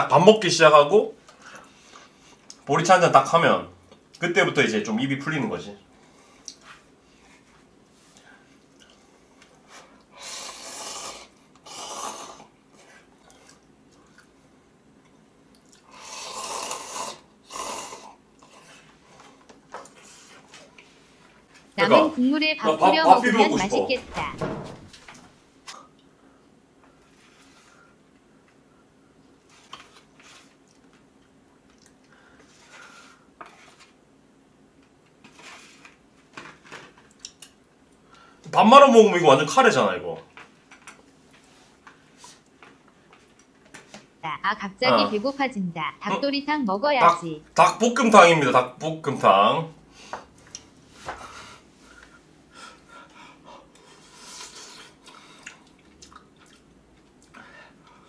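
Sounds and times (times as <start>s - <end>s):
wet slurping and chewing: 10.2s - 14.4s, 53.8s - 57.3s.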